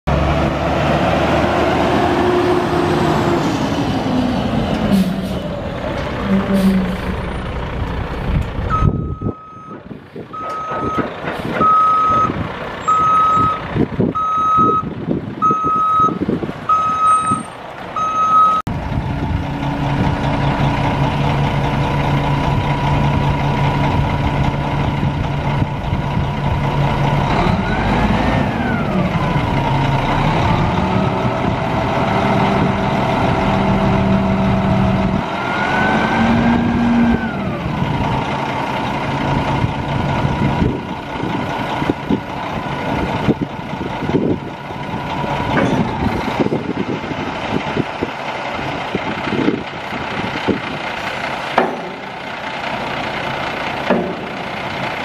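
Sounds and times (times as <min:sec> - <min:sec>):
diesel truck engine running: 0:00.1 - 0:55.0
reversing alarm beeping: 0:08.7 - 0:09.8, 0:10.4 - 0:11.0, 0:11.6 - 0:13.6, 0:14.2 - 0:18.7.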